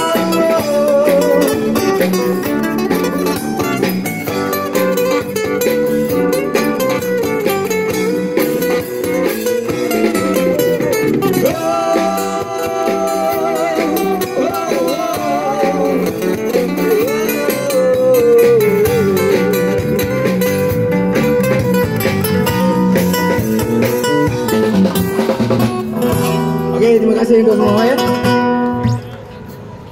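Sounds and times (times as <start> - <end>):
person singing: 0.0 - 2.4, 10.1 - 20.1
band with guitars and drums: 0.0 - 29.9.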